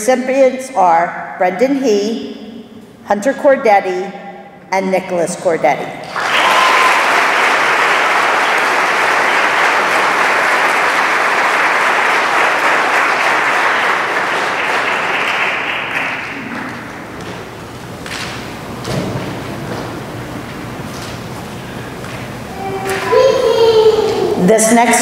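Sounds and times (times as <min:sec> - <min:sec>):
audience applauding: 0:06.0 - 0:16.9.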